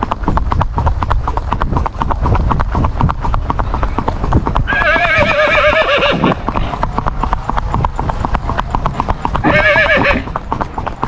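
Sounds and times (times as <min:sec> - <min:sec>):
horse hooves on asphalt: 0:00.0 - 0:11.0
horse whinny: 0:04.6 - 0:06.6, 0:09.3 - 0:10.4.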